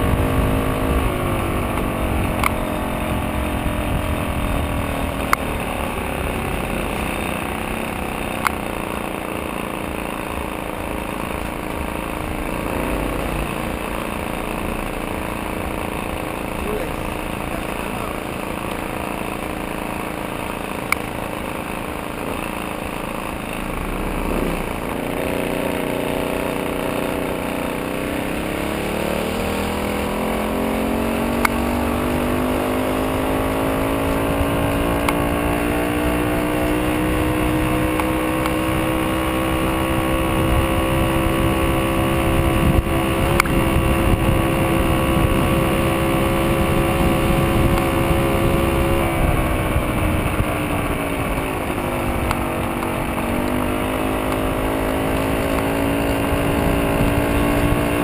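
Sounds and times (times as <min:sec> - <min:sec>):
moped engine running: 0:00.0 - 0:58.0
road noise: 0:00.0 - 0:58.0
wind noise: 0:40.3 - 0:53.4.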